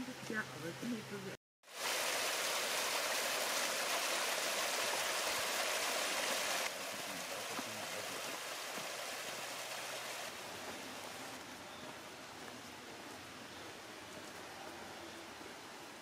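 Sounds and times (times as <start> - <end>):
waterfall splashing: 1.7 - 11.4.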